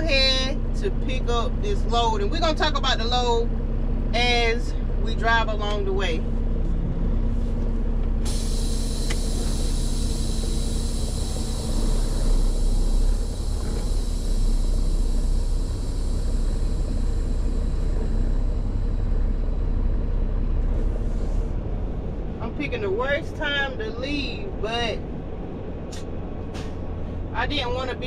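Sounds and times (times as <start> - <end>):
diesel truck engine running: 0.0 - 28.0
steady high-pitched hiss: 8.4 - 19.8.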